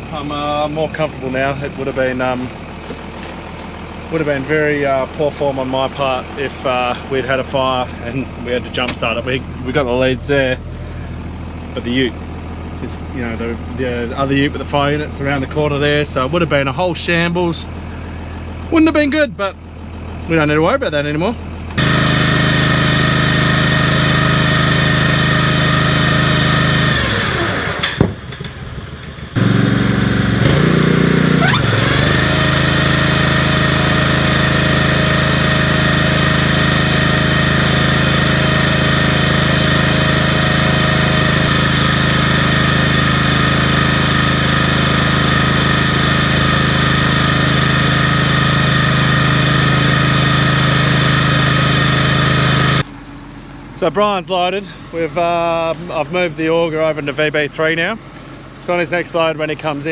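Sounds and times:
small engine running: 0:00.0 - 0:16.7, 0:21.5 - 0:53.7.

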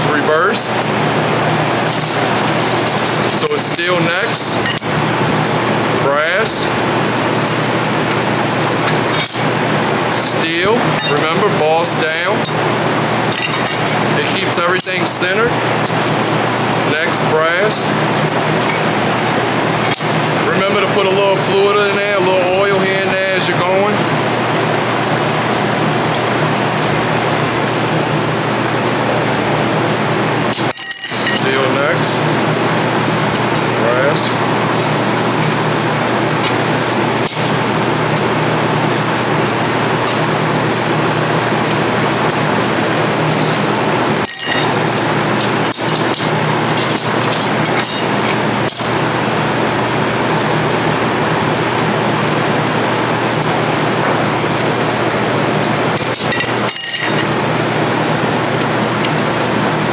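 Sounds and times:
workshop hiss: 0:00.0 - 0:12.4, 0:26.6 - 0:59.9
metal plates clinking: 0:13.3 - 0:14.1, 0:30.6 - 0:31.5, 0:37.2 - 0:37.6, 0:44.2 - 0:44.8, 0:45.4 - 0:48.9, 0:55.6 - 0:57.3.

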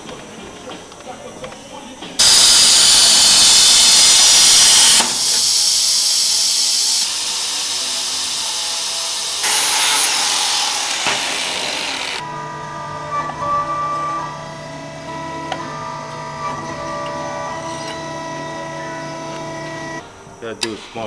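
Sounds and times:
plasma cutter torch hissing: 0:02.2 - 0:12.2
angle grinder grinding metal: 0:02.2 - 0:20.0.

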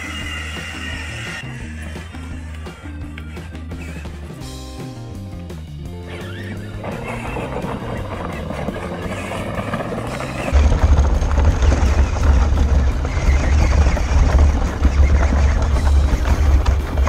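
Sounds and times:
background music: 0:00.0 - 0:11.6
loud low rumble: 0:07.4 - 0:17.0.

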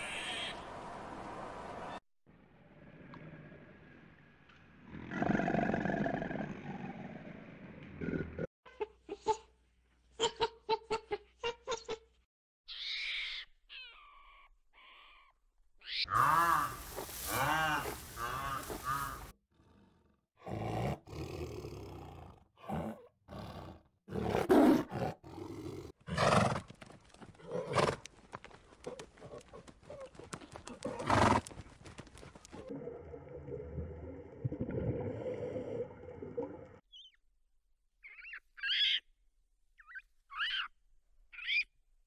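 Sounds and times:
rising and falling animal calls: 0:39.8 - 0:40.7.

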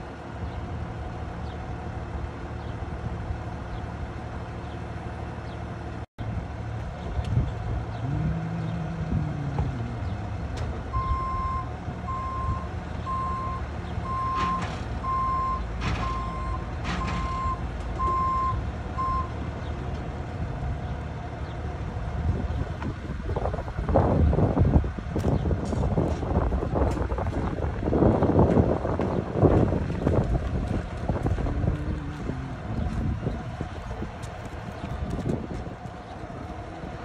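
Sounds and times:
truck engine rumbling: 0:00.0 - 0:37.0
reverse alarm beeping: 0:11.0 - 0:19.4.

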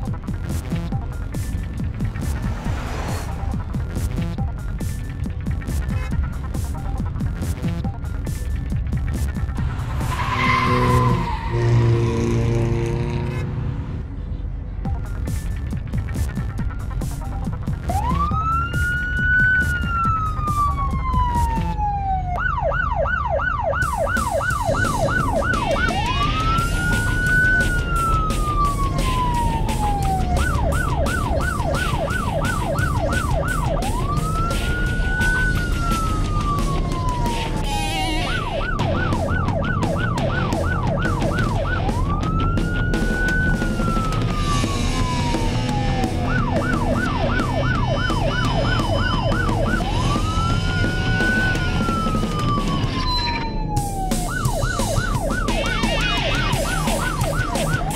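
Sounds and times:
steady low rumble: 0:00.0 - 0:05.7
electronic siren wailing and yelping: 0:09.9 - 0:13.1, 0:17.9 - 0:57.9.

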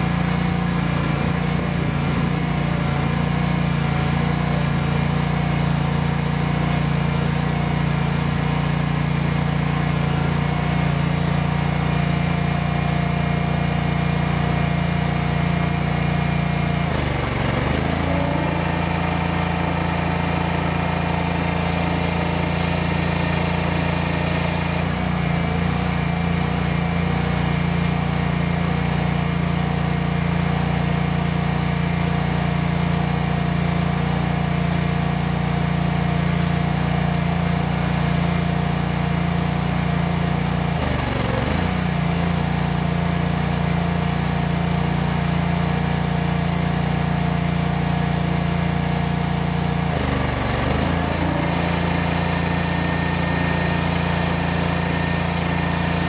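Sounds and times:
stump grinder engine running: 0:00.0 - 0:56.0
high hydraulic whine: 0:17.0 - 0:26.1, 0:50.3 - 0:56.0.

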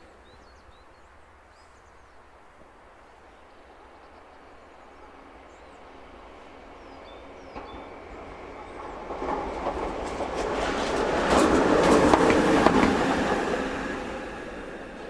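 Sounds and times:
locomotive passing: 0:05.9 - 0:15.0.

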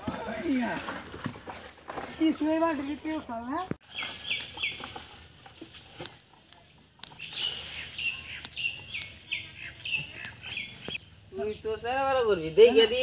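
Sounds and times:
bird chirping: 0:01.4 - 0:05.8, 0:06.6 - 0:12.6.

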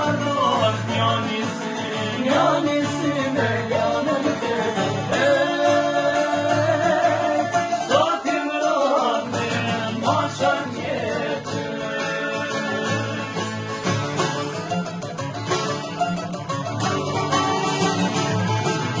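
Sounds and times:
men singing folk song: 0:00.0 - 0:14.2
acoustic guitar: 0:00.0 - 0:19.0
plucked lutes: 0:00.0 - 0:19.0.

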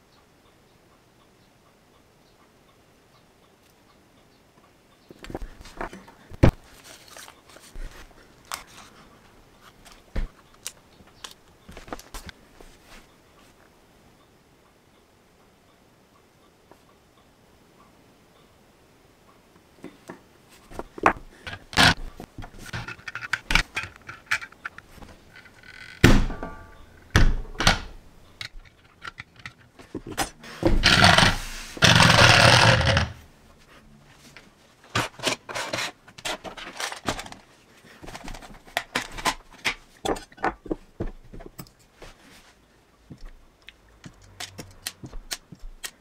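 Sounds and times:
toy car rolling across table: 0:30.6 - 0:33.2.

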